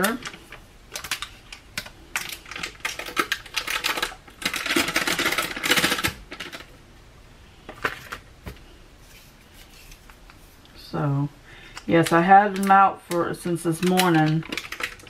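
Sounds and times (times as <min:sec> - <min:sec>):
butter wrapper crinkling: 0:13.8 - 0:15.0.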